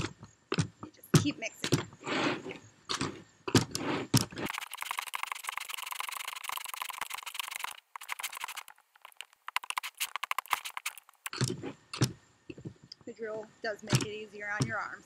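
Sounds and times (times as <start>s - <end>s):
tool scraping plastic bucket: 1.6s - 11.8s.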